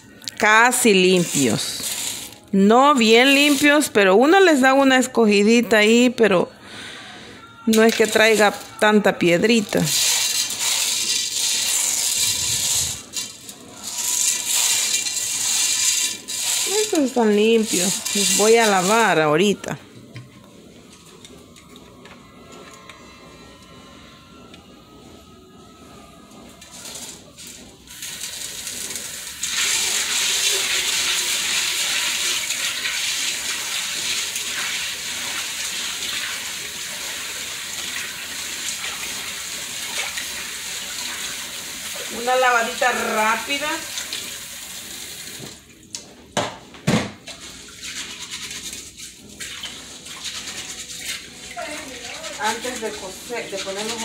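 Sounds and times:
dry beans rattling in a metal bowl: 0.4s - 5.0s, 7.7s - 19.8s, 26.6s - 44.0s, 47.7s - 54.0s
tap water running into pot: 9.5s - 19.2s, 26.9s - 45.7s.

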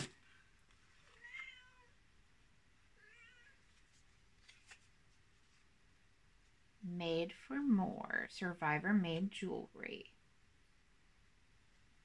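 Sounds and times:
cat meowing: 1.2s - 2.0s, 3.0s - 3.6s.

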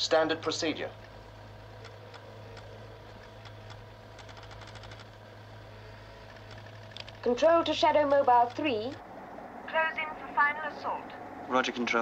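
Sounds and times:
low electronic hum: 0.0s - 12.0s
rapid clicking: 1.8s - 5.2s.

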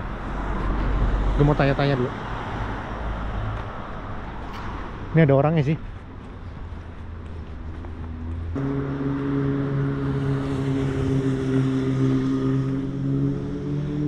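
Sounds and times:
engine humming: 6.2s - 14.0s.

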